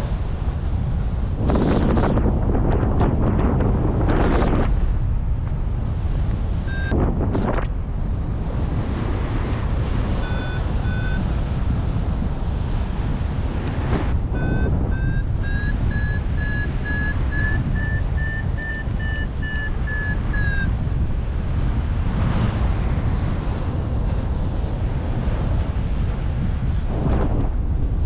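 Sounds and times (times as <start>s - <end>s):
wind buffeting microphone: 0.0s - 28.0s
variometer beeping: 6.7s - 7.6s, 10.2s - 11.3s, 14.2s - 20.8s.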